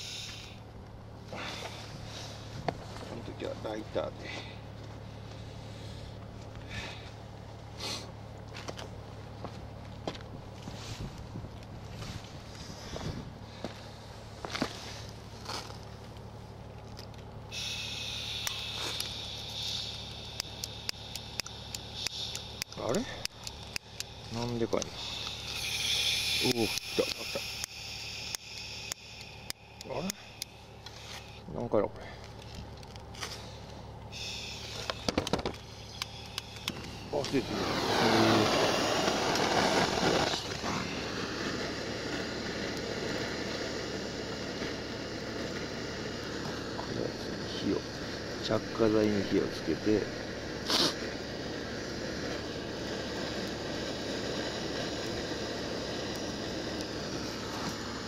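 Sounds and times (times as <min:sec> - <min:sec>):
gas hissing from lighter: 0:00.0 - 0:00.6, 0:07.8 - 0:08.2, 0:17.5 - 0:31.4, 0:33.2 - 0:58.0
lighter igniter clicking: 0:17.6 - 0:30.9, 0:34.2 - 0:48.4, 0:49.0 - 0:58.0.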